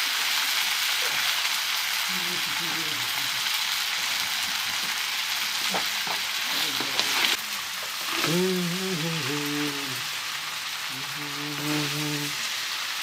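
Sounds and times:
food sizzling in a pan: 0:00.0 - 0:13.0
low voice: 0:02.1 - 0:03.5, 0:06.5 - 0:07.2, 0:08.1 - 0:10.2, 0:10.9 - 0:12.5.

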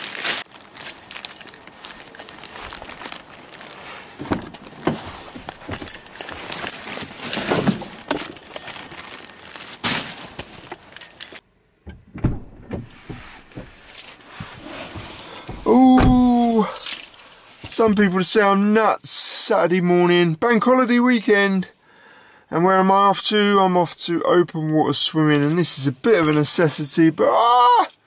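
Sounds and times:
knocks and rustles of handling: 0:00.0 - 0:18.0
car keys jangling: 0:00.8 - 0:03.3, 0:04.2 - 0:09.0, 0:10.4 - 0:11.4, 0:12.1 - 0:17.8
man talking: 0:15.6 - 0:16.9, 0:17.7 - 0:21.7, 0:22.5 - 0:27.9.

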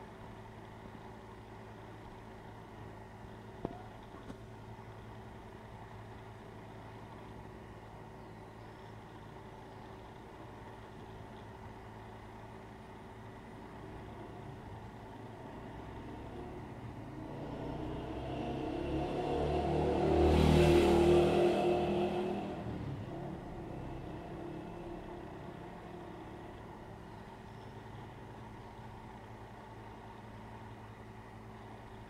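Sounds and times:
road vehicle passing by: 0:15.2 - 0:29.8
steady low hum: 0:21.6 - 0:32.0.

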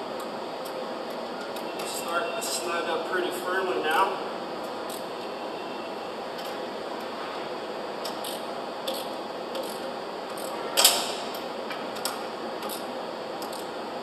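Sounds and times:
hand ratchet clicking: 0:08.0 - 0:11.0, 0:12.0 - 0:13.7.

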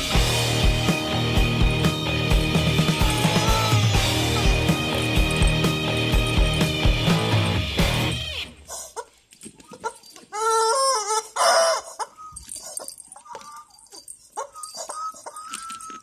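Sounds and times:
rubber chicken toy squeaking: 0:08.6 - 0:16.0.

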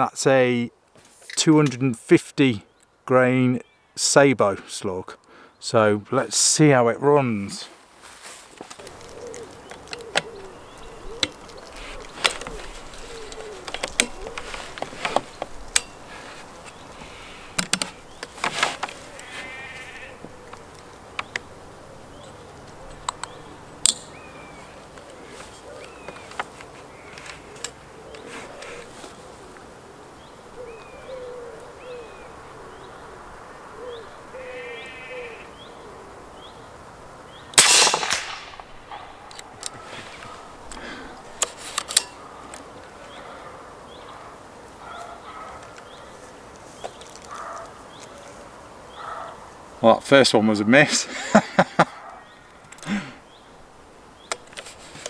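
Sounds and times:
birds chirping: 0:01.4 - 0:07.7, 0:08.6 - 0:55.0
air rifle shot: 0:37.6 - 0:38.9.

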